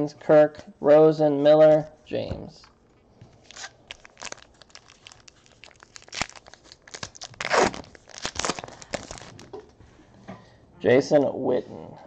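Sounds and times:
foil wrapper crinkling: 0:03.4 - 0:09.5
foil wrapper tearing: 0:03.4 - 0:09.5.

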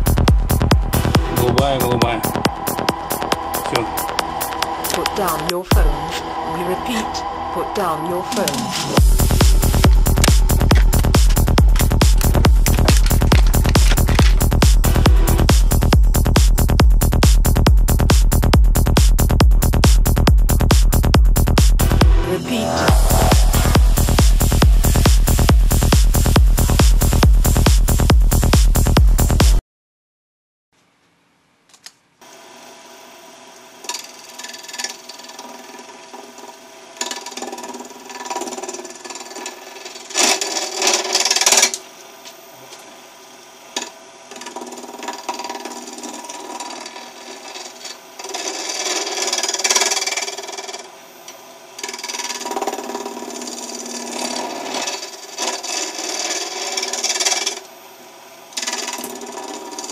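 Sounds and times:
wood lathe humming: 0:00.0 - 0:16.3, 0:33.5 - 0:42.2, 0:43.0 - 0:57.8, 0:58.5 - 0:59.9
turning tool scraping: 0:08.2 - 0:15.9, 0:33.8 - 0:41.8, 0:43.8 - 0:50.9, 0:51.8 - 0:57.7, 0:58.6 - 0:59.9.

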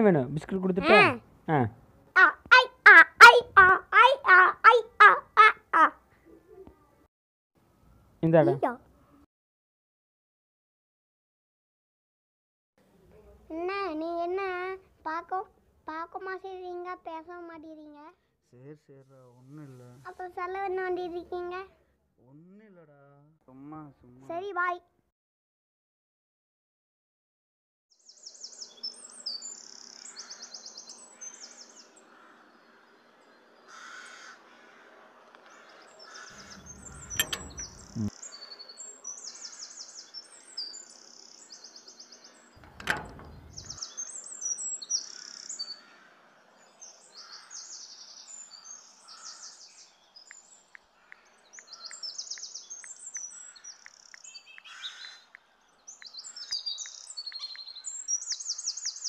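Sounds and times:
birds chirping and calling: 0:00.7 - 0:01.2, 0:35.5 - 0:38.4, 0:42.6 - 0:44.2, 0:46.8 - 0:50.0, 0:51.0 - 0:55.3.

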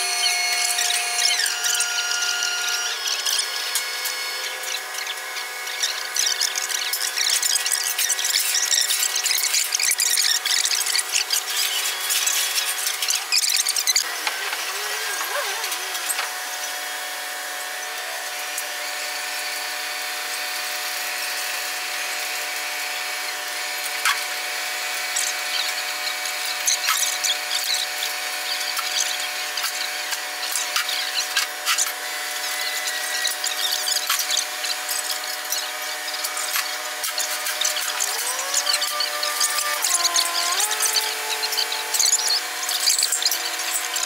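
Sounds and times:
wavering whine: 0:00.0 - 0:19.8.

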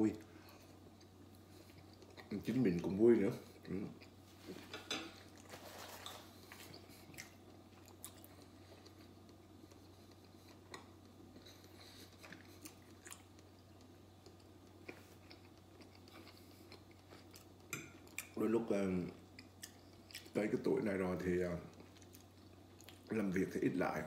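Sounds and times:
low room hum: 0:00.0 - 0:24.0
chewing food: 0:00.4 - 0:04.2, 0:05.1 - 0:18.4, 0:19.1 - 0:20.4, 0:21.7 - 0:23.1.

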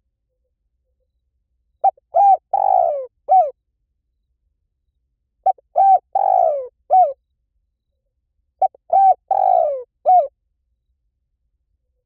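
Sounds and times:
dove cooing: 0:01.8 - 0:03.6, 0:05.4 - 0:07.2, 0:08.6 - 0:10.3.

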